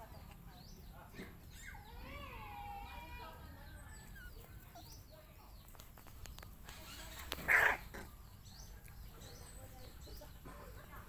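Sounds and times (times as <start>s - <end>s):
puppy barking: 7.4s - 8.0s.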